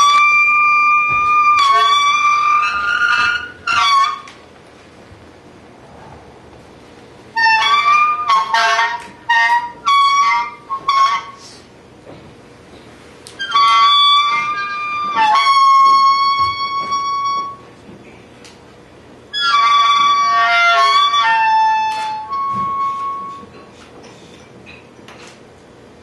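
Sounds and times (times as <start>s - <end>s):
wind instrument improvising: 0.0s - 4.5s, 6.7s - 11.7s, 13.3s - 17.8s, 19.3s - 23.6s.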